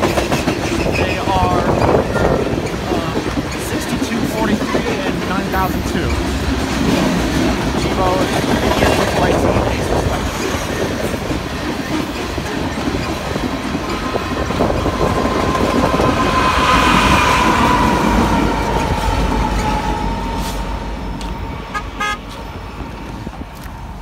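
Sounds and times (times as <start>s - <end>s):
diesel locomotives rumbling past: 0.0s - 24.0s
locomotive horn toot: 21.6s - 22.4s.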